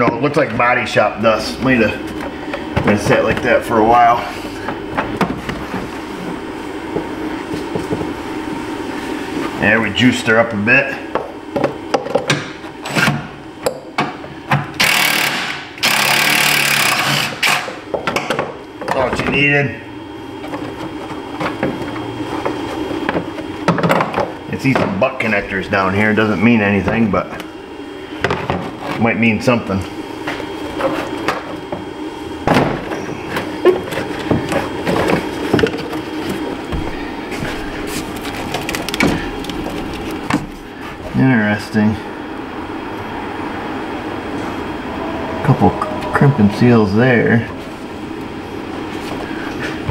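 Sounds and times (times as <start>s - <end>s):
cordless drill running: 14.8s - 17.8s.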